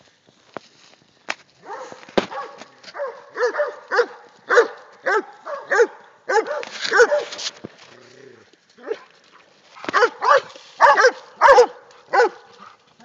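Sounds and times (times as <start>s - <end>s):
dog barking: 1.6s - 7.4s, 9.9s - 12.7s.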